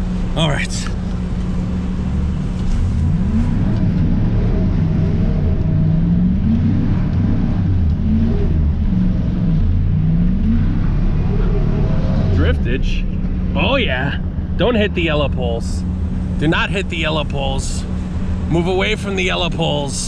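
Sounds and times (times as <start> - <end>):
truck engine revving: 0.0 - 20.0.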